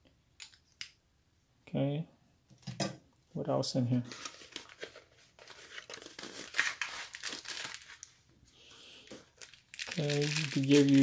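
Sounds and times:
plastic bag crinkling: 0:04.1 - 0:08.1, 0:09.1 - 0:11.0.

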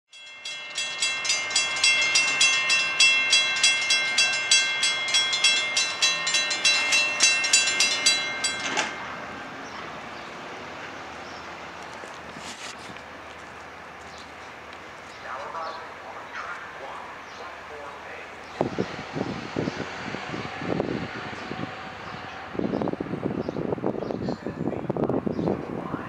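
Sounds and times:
railroad crossing bell ringing: 0:00.1 - 0:11.7
steady background noise: 0:01.3 - 0:26.0.

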